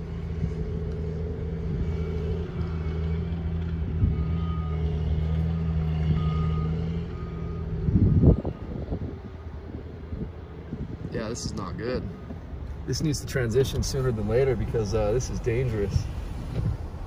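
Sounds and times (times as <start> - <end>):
vehicle engine droning: 0.0 - 17.0
reversing alarm beeping: 4.0 - 8.9.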